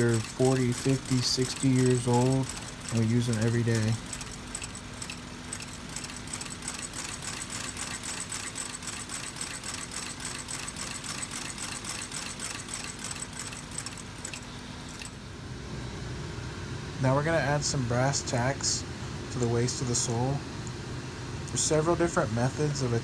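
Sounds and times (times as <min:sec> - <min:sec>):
sewing machine stitching clatter: 0:00.0 - 0:15.2
motor hum: 0:00.0 - 0:23.0.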